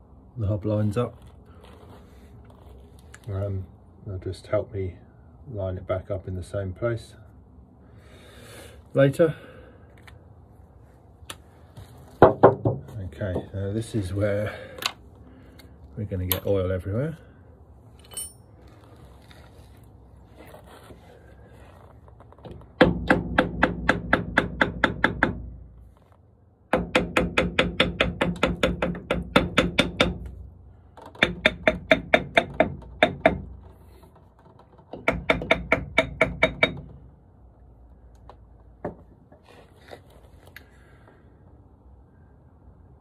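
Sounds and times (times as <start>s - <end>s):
hammer tapping on metal: 35.0s - 36.9s.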